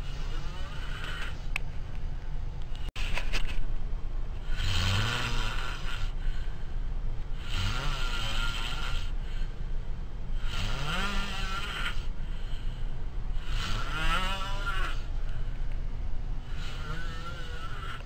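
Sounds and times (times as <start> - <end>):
person snoring: 4.4 - 6.2, 7.4 - 9.2, 13.4 - 15.1, 16.5 - 18.0.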